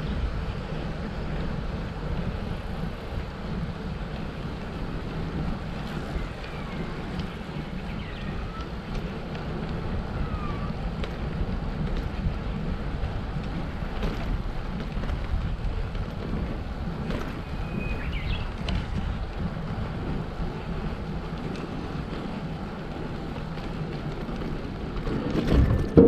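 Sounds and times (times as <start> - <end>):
wind rushing over microphone: 0.0 - 26.0.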